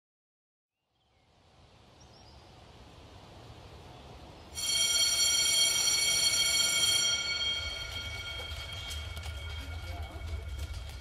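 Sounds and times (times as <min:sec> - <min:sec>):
high ringing tone: 0:04.6 - 0:11.0
low rumble: 0:07.4 - 0:11.0.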